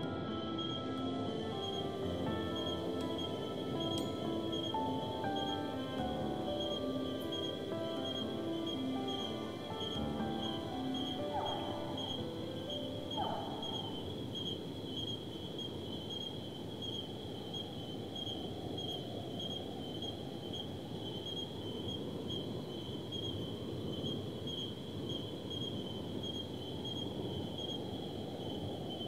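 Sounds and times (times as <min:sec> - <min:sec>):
music note: 0:00.0 - 0:14.0
high insect trill: 0:00.0 - 0:29.0.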